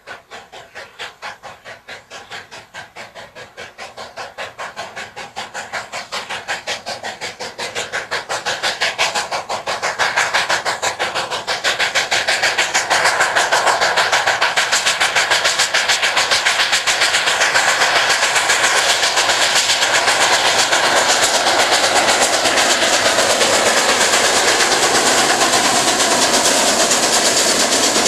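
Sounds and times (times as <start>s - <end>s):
steam locomotive chuffing: 0.0s - 28.0s.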